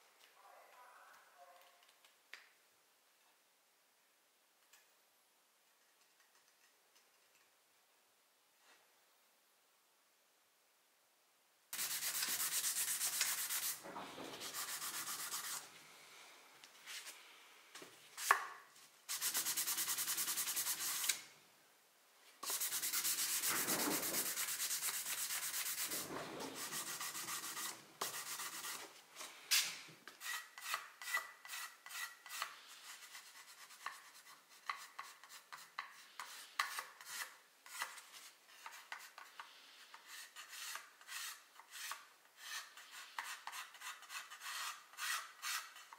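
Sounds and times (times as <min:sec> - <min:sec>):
sandpaper rubbing on wood: 0:11.8 - 0:15.7, 0:19.1 - 0:21.2, 0:22.4 - 0:28.9, 0:38.9 - 0:45.9.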